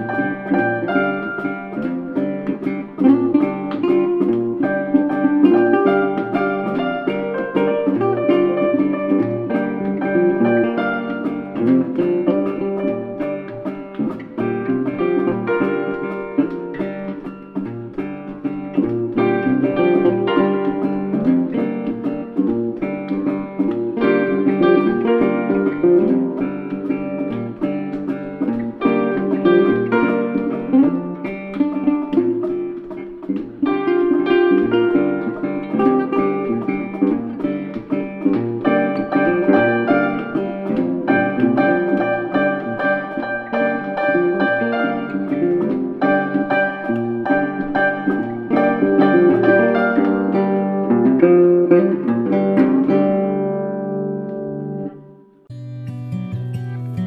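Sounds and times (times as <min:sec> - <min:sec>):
plucked string music: 0:00.0 - 0:57.0.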